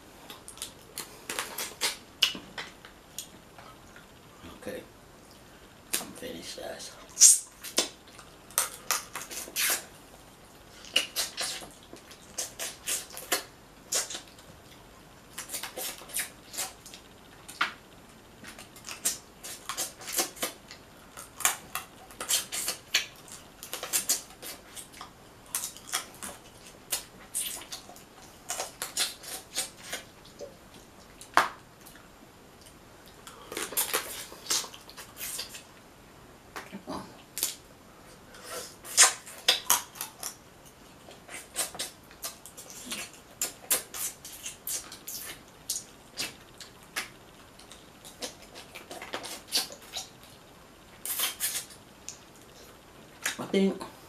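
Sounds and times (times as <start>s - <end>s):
mouth smacking and sucking clicks: 7.1s - 9.9s, 10.8s - 14.4s, 38.4s - 40.4s, 41.1s - 50.2s, 51.0s - 53.4s.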